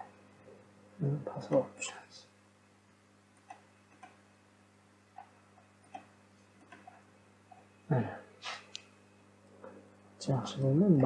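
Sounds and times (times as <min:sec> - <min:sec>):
low electrical hum: 0:00.0 - 0:11.0
soft computer mouse clicks: 0:03.4 - 0:04.2, 0:05.9 - 0:07.0.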